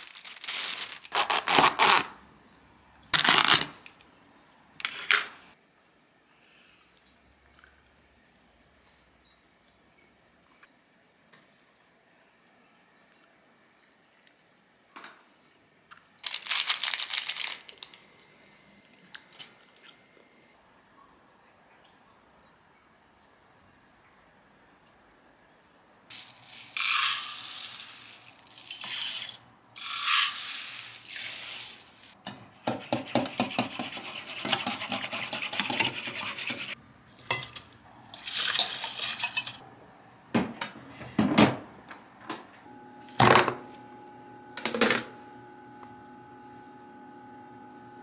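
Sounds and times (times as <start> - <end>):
spoon stirring in glass jug: 32.3 - 39.6.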